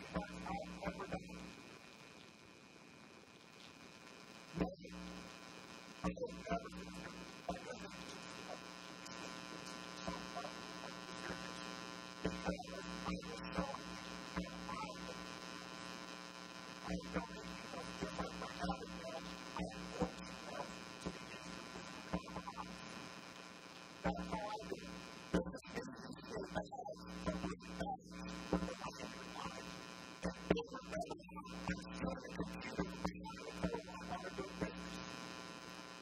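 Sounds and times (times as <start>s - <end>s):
buzzy electrical mains hum: 0.0s - 36.0s.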